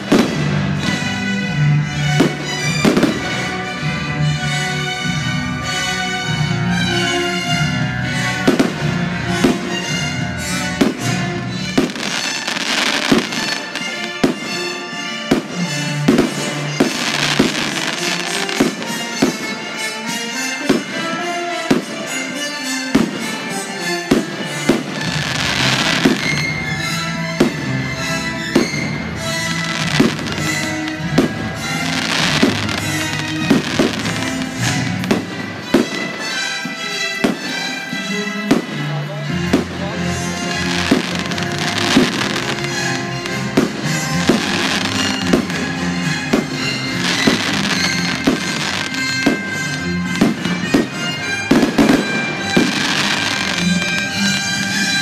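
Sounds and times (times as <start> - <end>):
music: 0.0 - 55.0
firework crackling: 10.7 - 37.8, 40.6 - 55.0.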